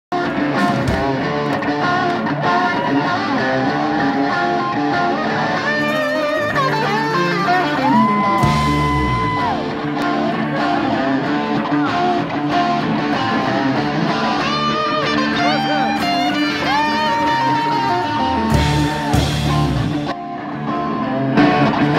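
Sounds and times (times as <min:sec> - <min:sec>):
drums: 0:00.1 - 0:21.9
electric guitar: 0:00.1 - 0:21.9.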